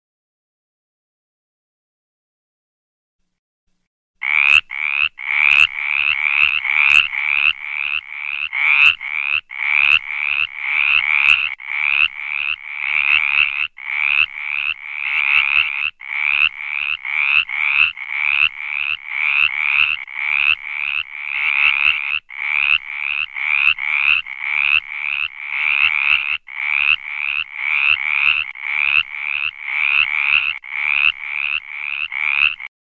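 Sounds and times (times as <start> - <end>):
tree frog croaking: 4.2 - 32.7.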